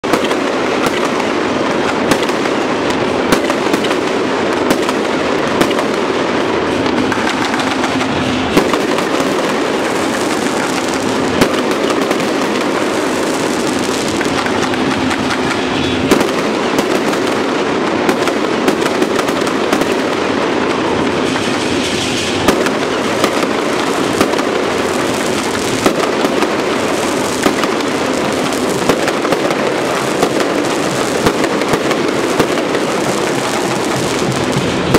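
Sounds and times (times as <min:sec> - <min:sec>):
fireworks rattle and crackle: 0:00.0 - 0:34.9
loud firework bangs: 0:00.0 - 0:34.9.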